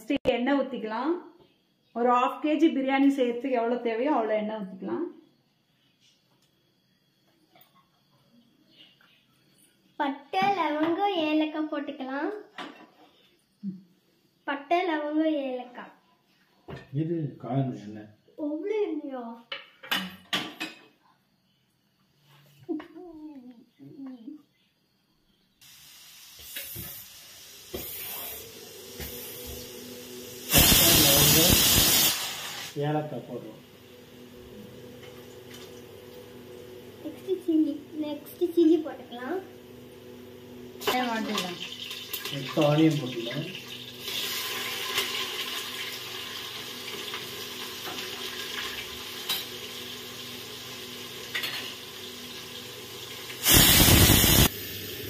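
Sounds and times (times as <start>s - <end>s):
onions sizzling in hot oil: 25.6s - 32.9s, 40.3s - 55.0s
pressure cooker hissing steam: 25.6s - 33.1s, 42.2s - 55.0s
loud burst of noise: 28.0s - 32.9s, 53.4s - 55.0s
pressure cooker whistle blast: 30.4s - 32.8s, 53.4s - 54.6s.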